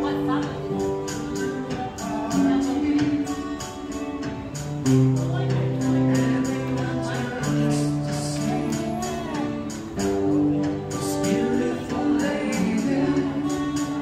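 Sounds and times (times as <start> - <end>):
electric guitar: 0.0 - 14.0
electric keyboard: 0.0 - 14.0
men singing together: 6.0 - 14.0.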